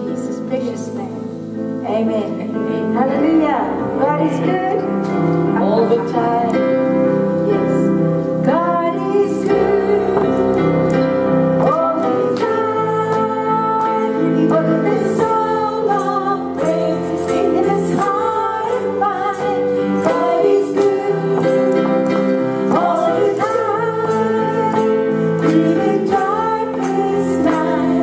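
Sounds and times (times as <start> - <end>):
women singing gospel song: 7.5 - 28.0.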